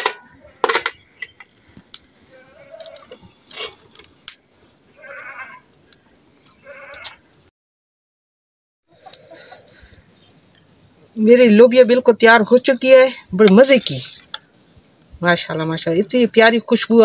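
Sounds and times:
goat bleating: 4.9 - 5.6, 6.6 - 7.2.

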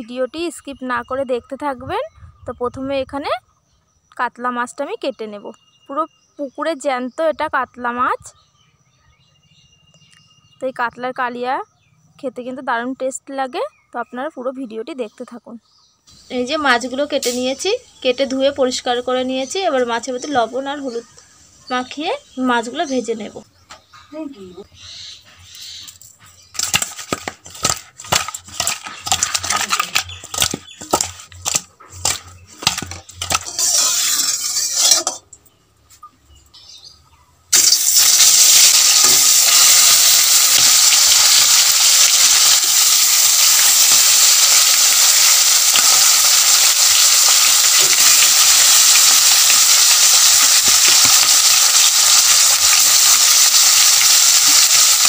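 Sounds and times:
fish sizzling in hot oil: 16.7 - 17.7, 26.6 - 35.2, 37.5 - 55.0.

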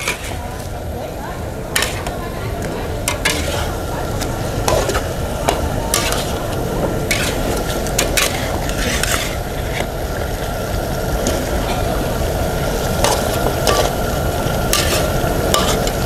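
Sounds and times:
metal spatula scraping a pan: 0.0 - 0.7, 1.7 - 9.9, 12.9 - 16.0
sauce sizzling in a wok: 0.0 - 16.0.

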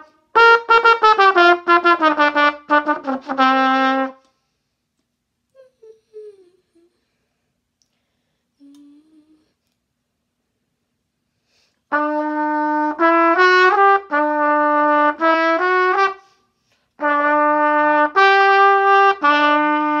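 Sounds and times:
solo brass instrument melody: 0.0 - 4.3, 11.9 - 16.4, 17.0 - 20.0.

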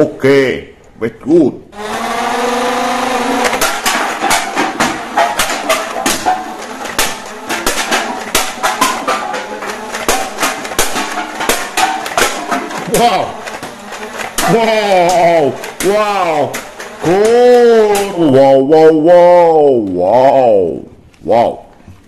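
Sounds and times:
sharp irregular clicks and knocks: 3.4 - 18.3.

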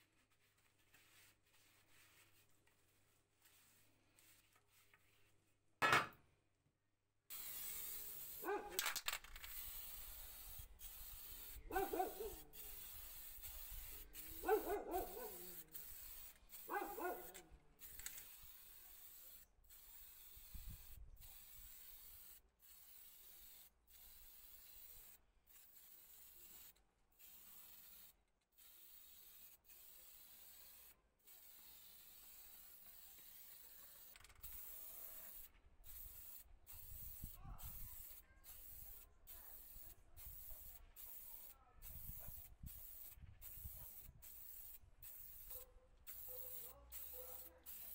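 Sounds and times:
spray paint can hissing: 0.1 - 2.4, 7.3 - 47.9
dog barking: 8.4 - 8.8, 11.7 - 12.4, 14.4 - 15.6, 16.7 - 17.4, 45.5 - 47.6.

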